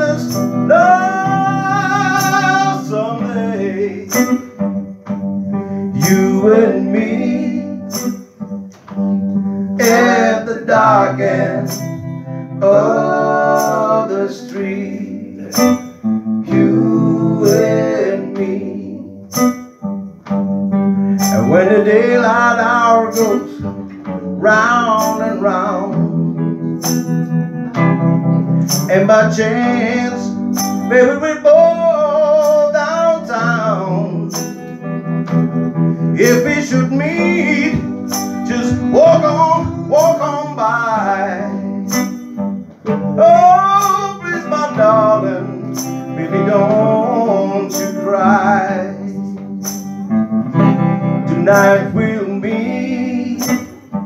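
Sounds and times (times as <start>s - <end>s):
man singing: 0.0s - 4.6s, 5.9s - 8.2s, 9.8s - 15.8s, 16.4s - 19.2s, 21.2s - 26.6s, 28.8s - 34.6s, 36.1s - 42.2s, 43.2s - 49.5s, 51.2s - 54.0s
electric guitars: 0.0s - 54.0s.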